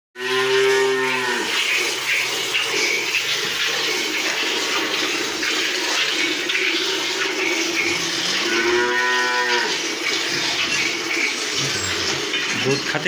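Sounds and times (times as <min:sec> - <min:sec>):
cow mooing: 0:00.2 - 0:01.8, 0:08.2 - 0:09.9
milk squirting into a pail: 0:00.3 - 0:13.0.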